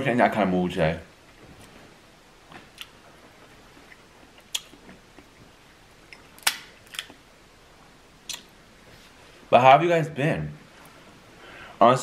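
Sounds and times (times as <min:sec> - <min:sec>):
soft eating sounds: 0:01.2 - 0:09.5
crab shell cracking: 0:06.2 - 0:07.2.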